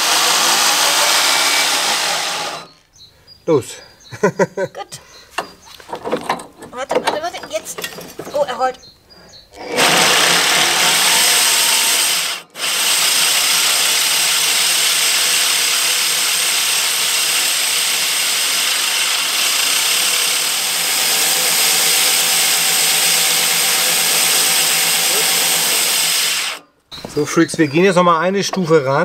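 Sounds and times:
mower reel blades grinding: 0:00.0 - 0:02.8, 0:09.6 - 0:27.3
power drill spinning: 0:00.0 - 0:02.9, 0:09.5 - 0:27.7.

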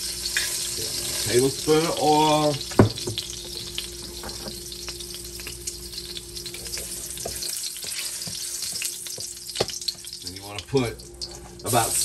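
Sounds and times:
oil sizzling and popping in a wok: 0:00.0 - 0:12.0
utensil stirring through oil: 0:03.4 - 0:10.2.

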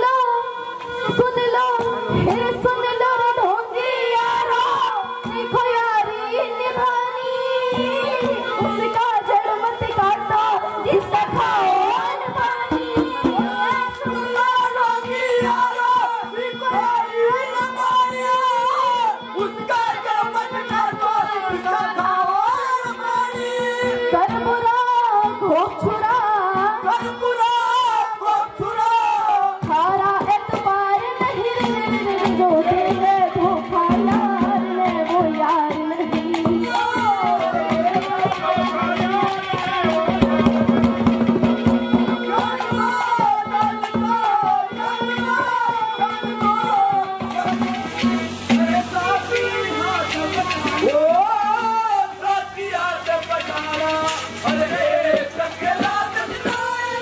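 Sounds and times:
woman singing into microphone: 0:00.0 - 0:57.0
hand drum beat: 0:01.1 - 0:29.0, 0:29.6 - 0:57.0
steady held note: 0:47.1 - 0:56.5.

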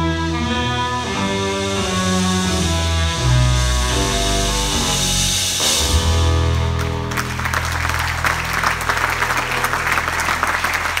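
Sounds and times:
audience applause: 0:06.6 - 0:11.0.

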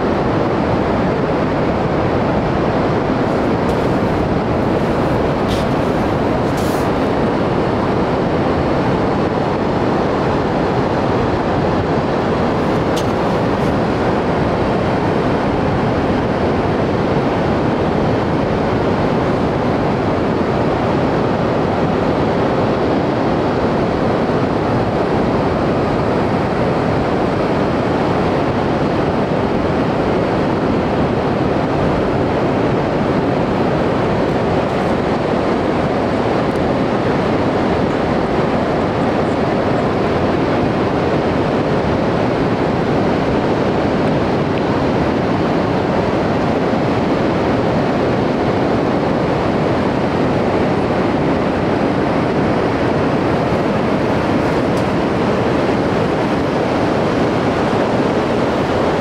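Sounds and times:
ocean surf breaking: 0:00.6 - 0:08.9, 0:10.8 - 0:21.0.

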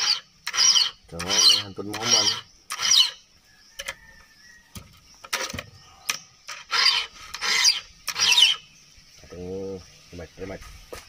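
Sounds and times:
file rasping on chainsaw chain: 0:00.0 - 0:03.2, 0:06.6 - 0:08.6.

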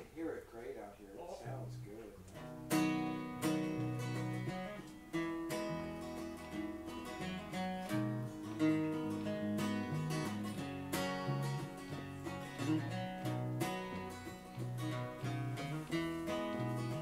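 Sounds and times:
acoustic guitar strumming: 0:01.4 - 0:17.0
electric bass guitar: 0:01.4 - 0:17.0.

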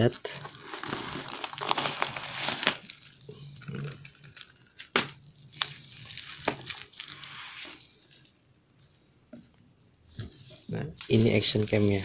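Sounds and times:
plastic wrap crinkling: 0:00.0 - 0:09.0, 0:10.2 - 0:12.0.

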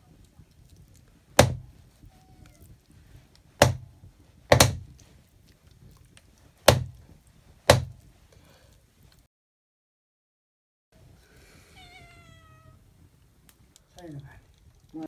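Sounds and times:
knife chopping on wooden block: 0:01.4 - 0:01.6, 0:03.6 - 0:03.8, 0:04.5 - 0:04.8, 0:06.7 - 0:07.0, 0:07.7 - 0:08.0.

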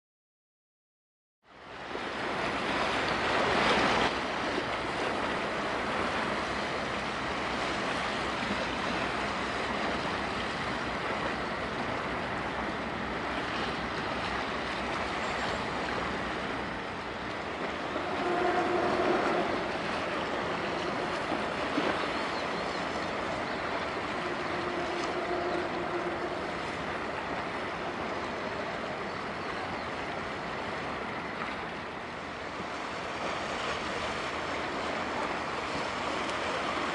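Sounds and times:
waves: 0:01.4 - 0:36.9
wind over open water: 0:01.4 - 0:36.9
faint humming tone: 0:17.6 - 0:30.1.

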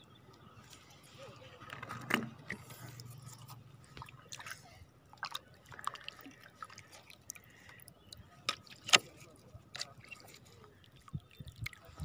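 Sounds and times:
water dripping and splashing: 0:02.4 - 0:12.0.

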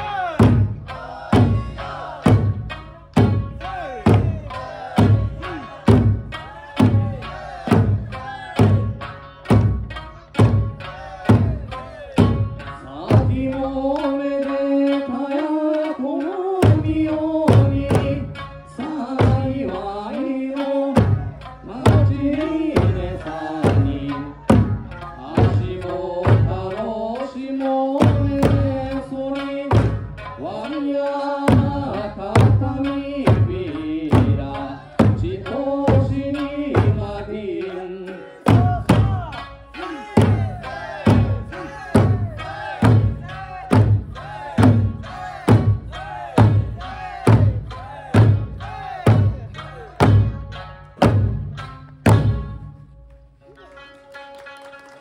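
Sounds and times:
folk song singing: 0:00.0 - 0:55.0
large barrel drums struck: 0:00.4 - 0:13.4, 0:40.2 - 0:52.6.

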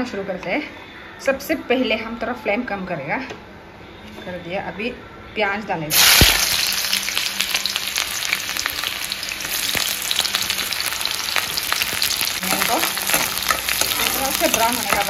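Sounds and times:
onions sizzling in hot oil: 0:05.9 - 0:15.0.

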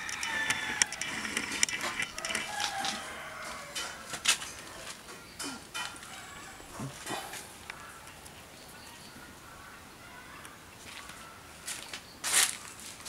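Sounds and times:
sharp clicks and knocks: 0:00.0 - 0:03.0
chickens calling: 0:00.0 - 0:13.0.

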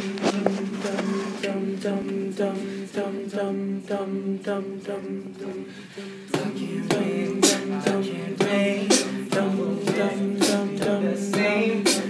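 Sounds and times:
male group singing harmony: 0:00.0 - 0:12.0
sharp percussive beat: 0:06.4 - 0:12.0.

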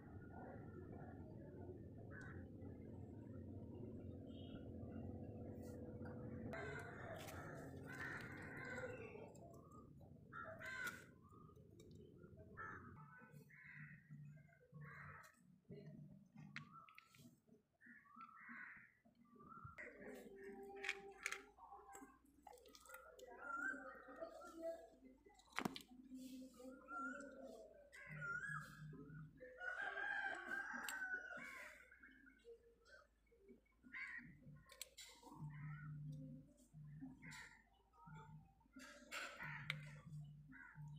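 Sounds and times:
crows cawing: 0:06.6 - 0:09.4, 0:10.3 - 0:11.5, 0:12.6 - 0:14.0, 0:17.9 - 0:19.0, 0:33.8 - 0:34.6, 0:39.1 - 0:40.9
rooster crowing: 0:29.6 - 0:31.4.

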